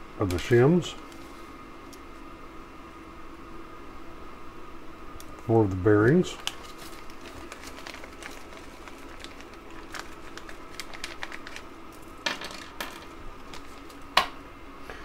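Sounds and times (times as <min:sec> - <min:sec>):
faint steady hum: 0:00.0 - 0:15.0
plastic bag crinkling: 0:06.3 - 0:14.0.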